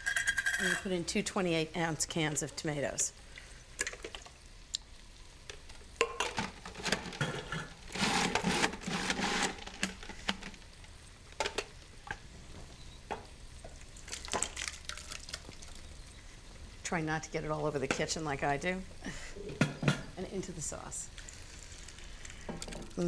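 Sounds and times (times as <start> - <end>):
food processor noise: 7.9 - 9.8.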